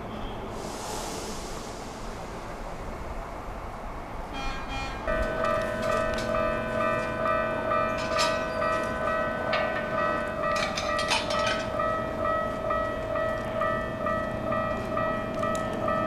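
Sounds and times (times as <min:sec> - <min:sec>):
level crossing warning bell: 0:04.3 - 0:16.0.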